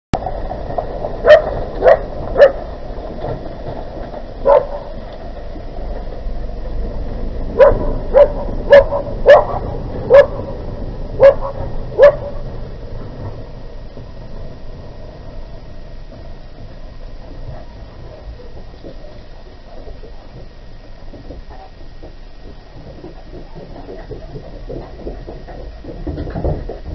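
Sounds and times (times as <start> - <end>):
dog barking: 1.2 - 2.6, 4.4 - 4.9, 7.6 - 10.4, 11.2 - 12.4.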